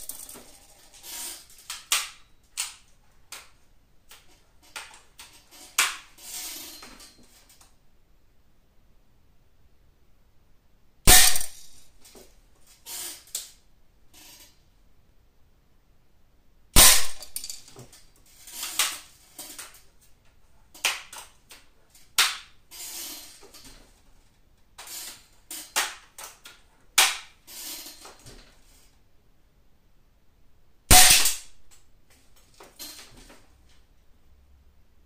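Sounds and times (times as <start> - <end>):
air rifle shot: 16.8 - 17.2.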